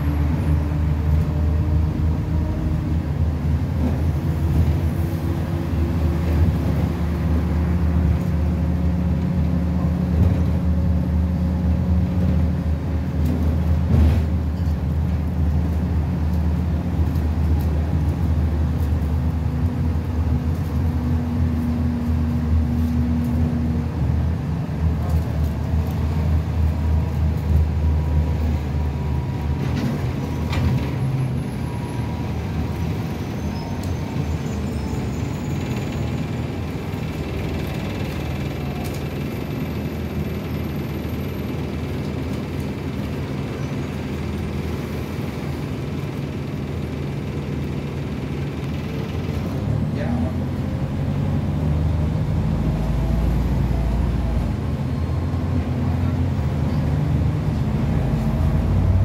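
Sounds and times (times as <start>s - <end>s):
bus diesel engine drone: 0.0s - 59.0s.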